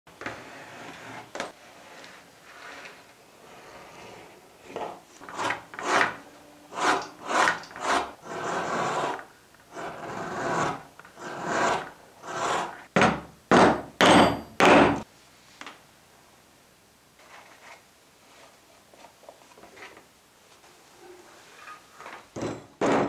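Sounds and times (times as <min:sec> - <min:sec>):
blade scraping leather: 0:05.2 - 0:12.8.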